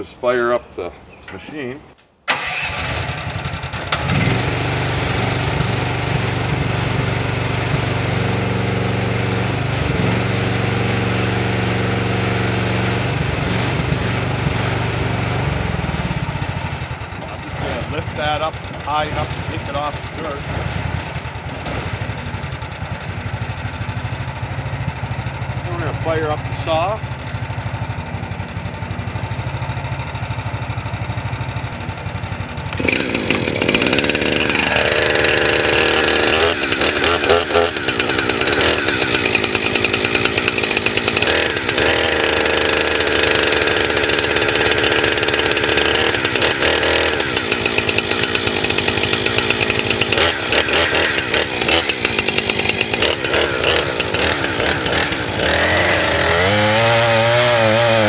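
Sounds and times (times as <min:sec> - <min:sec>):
chainsaw revving: 0:02.3 - 0:24.0, 0:32.7 - 0:58.0
excavator engine idling: 0:11.7 - 0:58.0.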